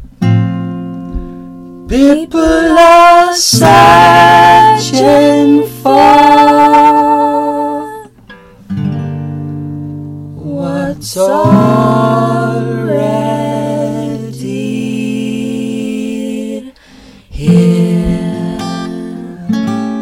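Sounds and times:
acoustic guitar strummed: 0.0 - 14.9, 17.0 - 20.0
man and girl singing: 1.9 - 8.1, 10.4 - 20.0.

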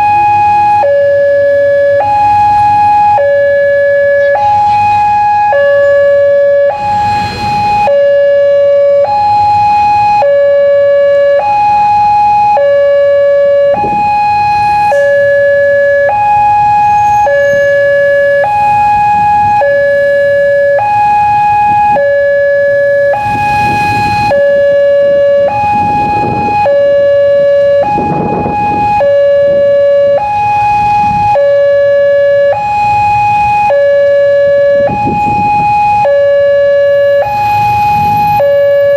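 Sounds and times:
two-tone level-crossing siren: 0.0 - 38.9.

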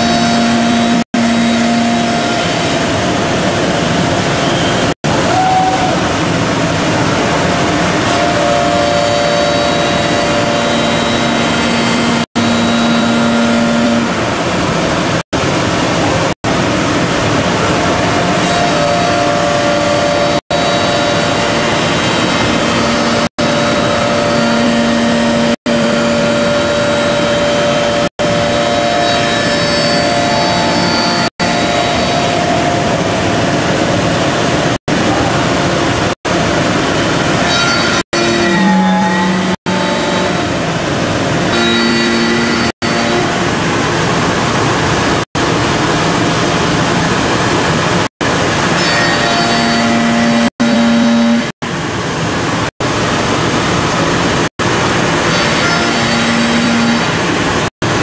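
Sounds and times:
wood lathe machining: 0.0 - 5.3, 6.1 - 14.8, 16.0 - 36.0, 48.3 - 51.5, 54.6 - 58.0.

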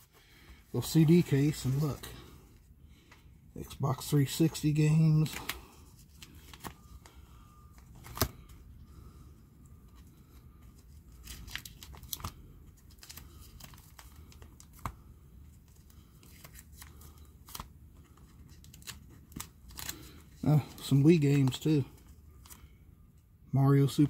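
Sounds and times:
plastic sleeves crinkling: 3.6 - 8.6, 9.8 - 22.7.

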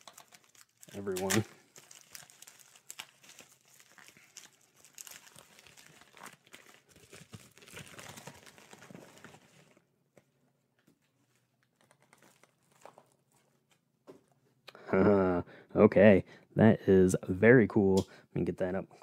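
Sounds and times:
packaging crinkling and tearing: 0.0 - 13.8.

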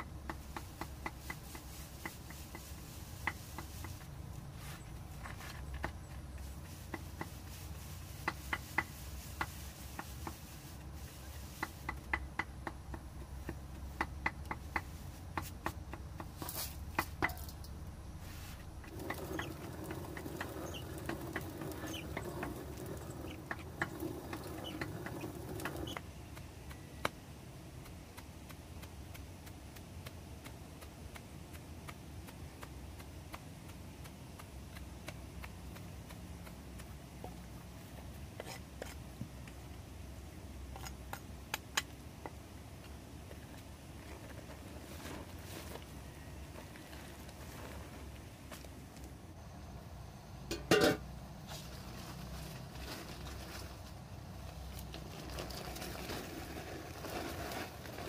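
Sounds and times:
dry corn kernels clicking: 0.0 - 17.8, 18.6 - 39.7, 51.7 - 58.0.

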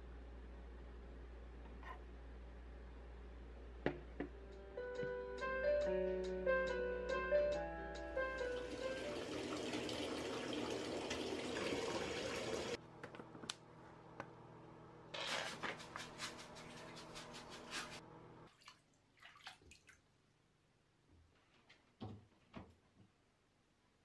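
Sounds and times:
water running into bathtub: 8.5 - 12.8, 15.2 - 20.1
water drips and splashes: 18.5 - 20.1.

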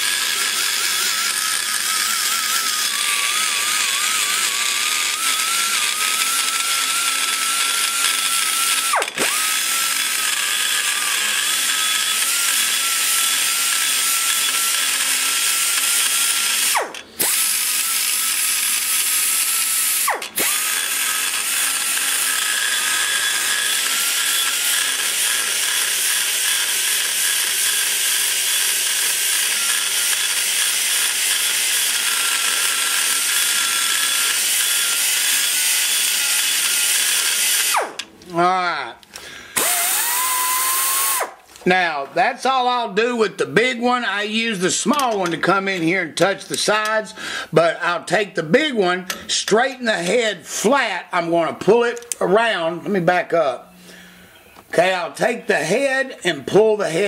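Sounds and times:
die grinder cutting aluminum: 0.0 - 38.6, 39.2 - 41.4, 44.0 - 52.3.

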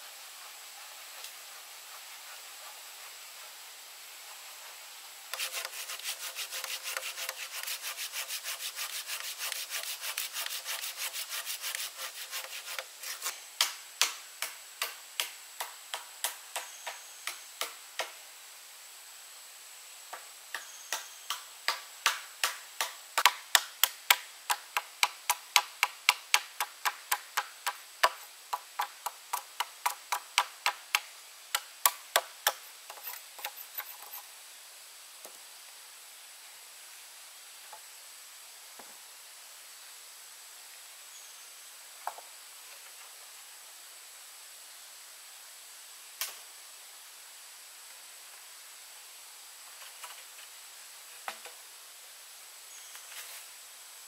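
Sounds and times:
hand tool striking bamboo: 5.4 - 18.2, 20.6 - 34.0.

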